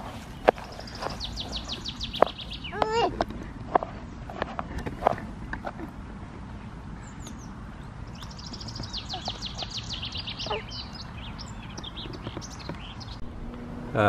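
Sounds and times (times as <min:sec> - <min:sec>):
songbird trilling: 0:00.4 - 0:03.1, 0:07.0 - 0:13.2.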